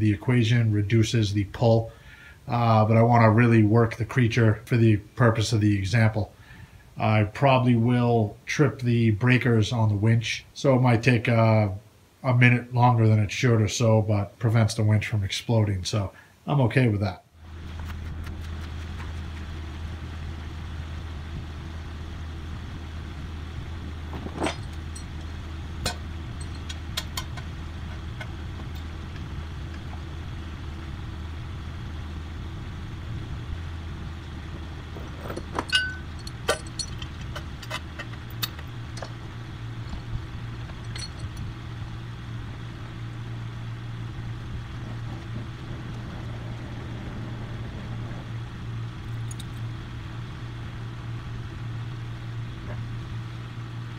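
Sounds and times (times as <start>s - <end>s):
vehicle engine idling: 17.4s - 53.9s
metal chain clinking: 24.1s - 28.9s, 35.0s - 39.2s, 39.8s - 41.4s.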